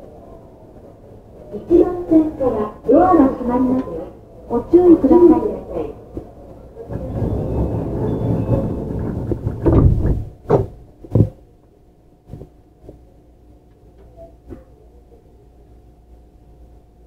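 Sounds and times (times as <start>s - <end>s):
train rumbling: 0.0s - 11.1s
faint train hum: 0.0s - 17.0s
sliding train doors thudding: 6.1s - 11.4s.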